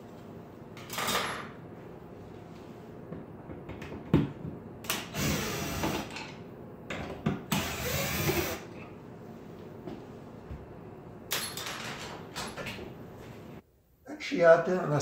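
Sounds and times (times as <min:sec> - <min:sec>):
cordless drill running: 0:05.0 - 0:06.1, 0:07.5 - 0:08.7.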